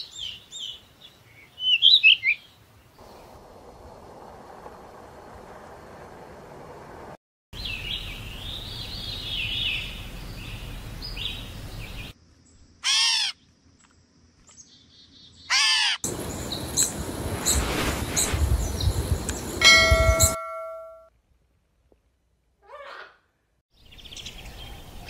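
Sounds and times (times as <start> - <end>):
catbird mewing calls: 15.5 - 16.0
brief ringing tone: 19.6 - 21.1.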